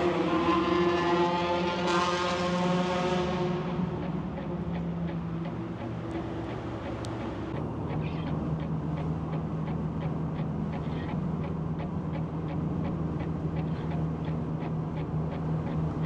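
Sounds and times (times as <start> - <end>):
car engine drone: 0.0 - 16.0
road and tyre noise: 0.0 - 16.0
faint regular ticks: 2.5 - 16.0.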